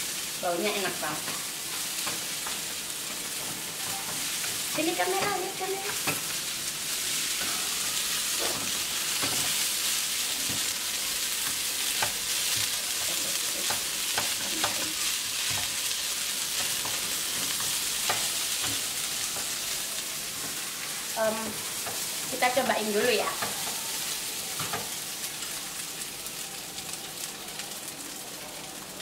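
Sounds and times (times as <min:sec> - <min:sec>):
rice sizzling in a frying pan: 0:00.0 - 0:29.0
spatula knocking and scraping pan: 0:01.2 - 0:06.4, 0:08.3 - 0:09.6.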